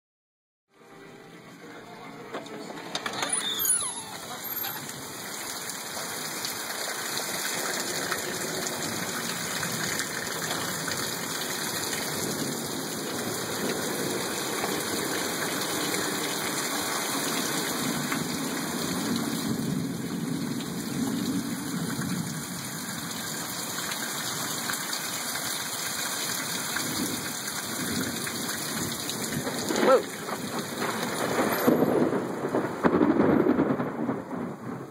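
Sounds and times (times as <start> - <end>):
heavy rain pouring: 0.8 - 34.9
thunder crack: 29.2 - 34.9.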